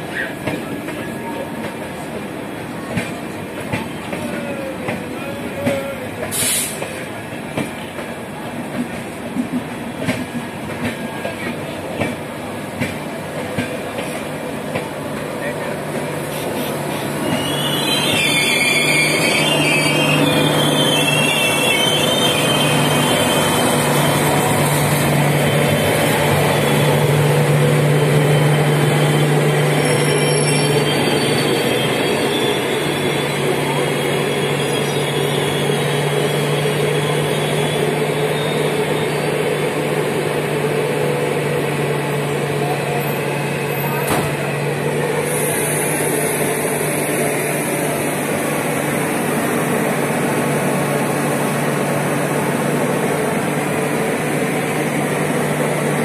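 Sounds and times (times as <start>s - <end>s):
train wheels squealing: 15.3s - 40.3s, 41.7s - 56.0s.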